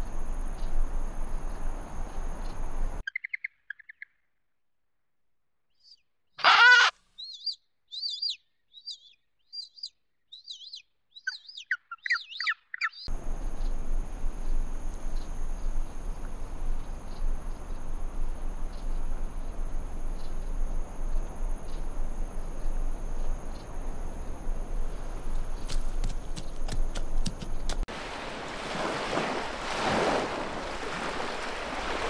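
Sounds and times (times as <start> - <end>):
high insect drone: 0.0 - 3.0, 13.1 - 27.6
high bird chirps: 3.0 - 4.2, 5.8 - 13.1.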